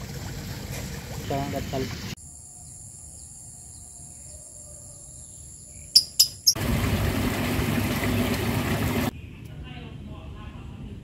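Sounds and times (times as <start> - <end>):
insects trilling: 2.2 - 6.6
bird chirps: 2.6 - 6.6.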